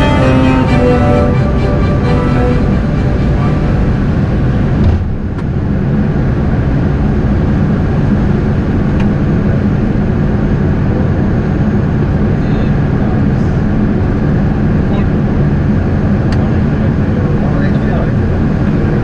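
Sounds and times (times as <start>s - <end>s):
background music: 0.0s - 4.8s
airliner cockpit noise: 0.0s - 19.0s.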